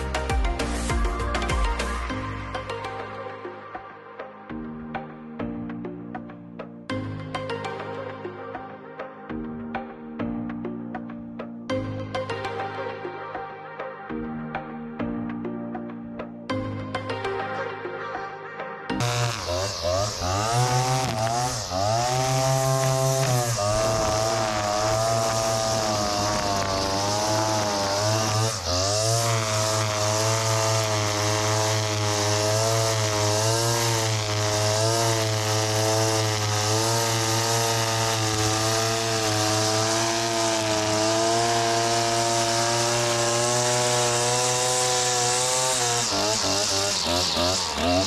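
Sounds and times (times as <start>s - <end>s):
string trimmer running: 19.0s - 48.0s.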